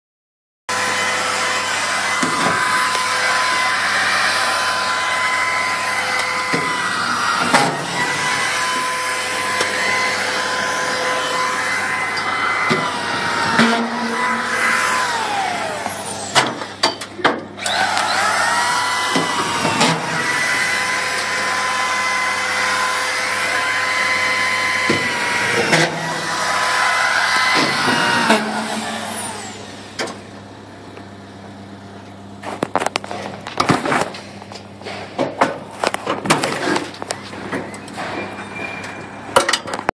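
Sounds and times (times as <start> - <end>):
electric motor whining: 0.7 - 16.9, 17.6 - 30.2.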